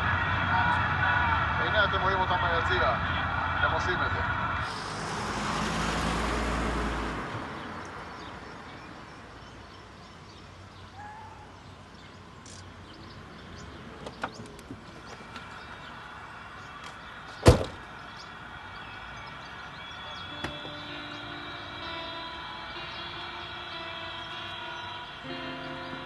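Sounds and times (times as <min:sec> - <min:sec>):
car door slam: 0:17.4 - 0:17.9, 0:20.4 - 0:20.8.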